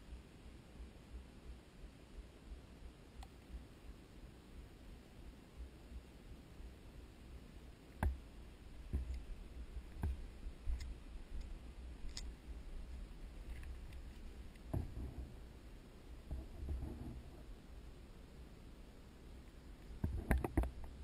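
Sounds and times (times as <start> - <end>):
low steady rumble: 0.0 - 21.0
sharp clicks and knocks: 8.9 - 9.3, 9.9 - 12.3, 19.9 - 21.0.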